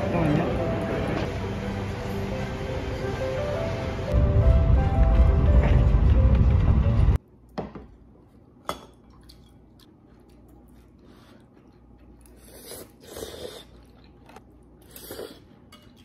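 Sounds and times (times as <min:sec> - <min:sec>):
slurping and chewing: 0:09.1 - 0:16.0.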